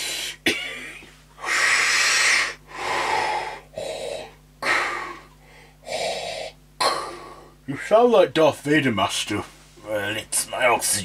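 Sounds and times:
man breathing heavily: 0.0 - 0.4, 1.4 - 7.6.

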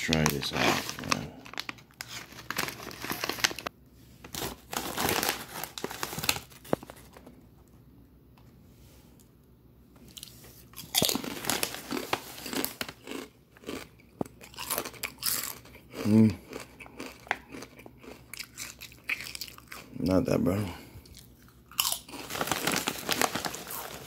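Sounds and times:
chip bag crinkling: 0.0 - 7.3, 10.1 - 15.8, 21.2 - 24.0
crunching and chewing chip: 10.1 - 20.0, 21.0 - 24.0.

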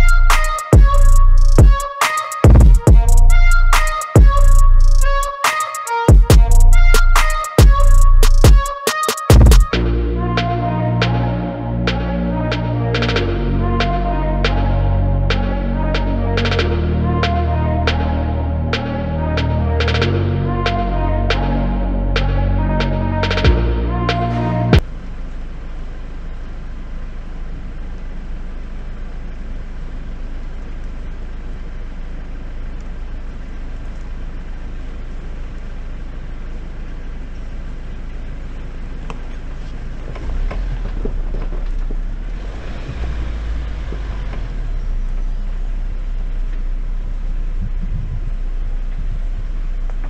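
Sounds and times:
car engine idling: 0.0 - 5.4, 6.2 - 50.0
car driving on dirt trail: 24.8 - 50.0.

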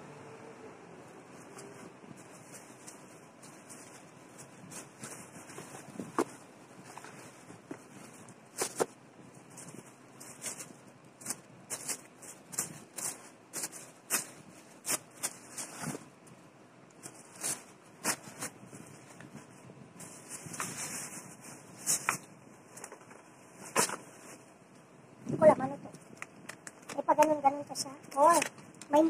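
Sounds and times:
tissue paper crinkling: 1.3 - 16.1, 17.0 - 23.0.

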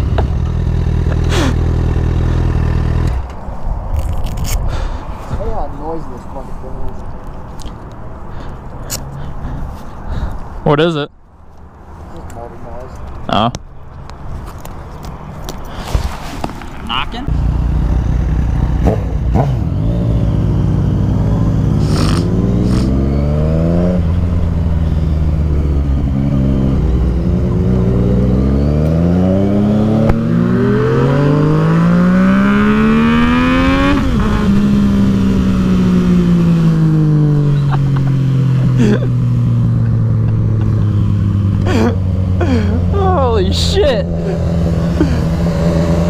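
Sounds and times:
motorcycle engine accelerating: 0.0 - 3.3, 17.3 - 46.0.

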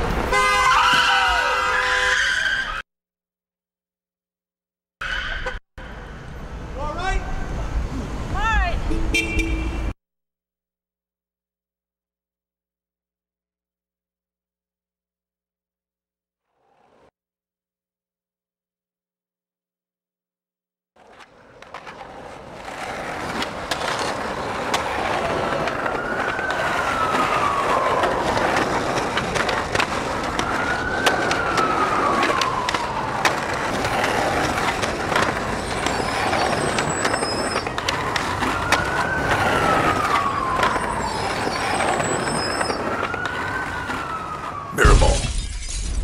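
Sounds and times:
traffic: 0.0 - 2.8, 5.0 - 10.0, 21.0 - 46.0
emergency vehicle siren wailing: 24.9 - 45.2.

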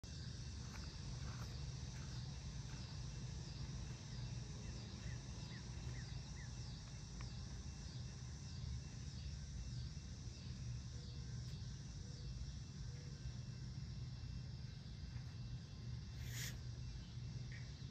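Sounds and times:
insect drone: 0.0 - 17.9
faint short chirps: 16.2 - 16.6.

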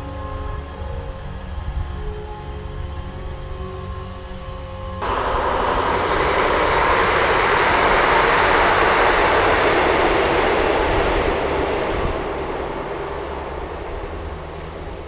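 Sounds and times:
passenger train passing: 5.0 - 15.0.

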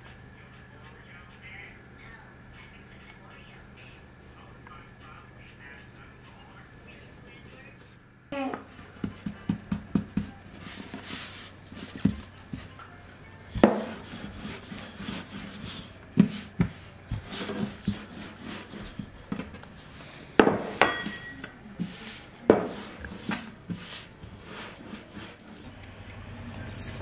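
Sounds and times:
rolling pin rubbing on dough: 8.7 - 25.7.

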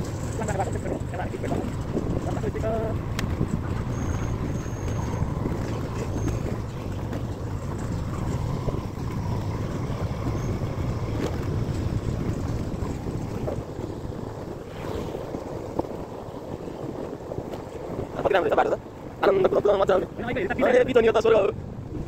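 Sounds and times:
vehicle engine and road rumble: 0.0 - 22.0
wind buffeting microphone: 0.0 - 22.0.

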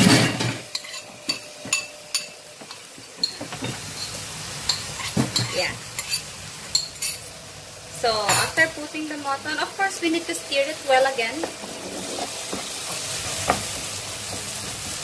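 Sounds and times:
meat sizzling in a frying pan: 0.0 - 15.0
spoon clinking against bowl: 4.0 - 7.2.

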